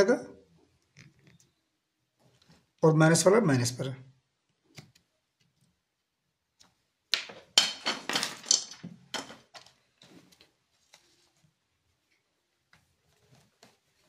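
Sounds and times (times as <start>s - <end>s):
hard objects clattering on tabletop: 7.2s - 9.8s.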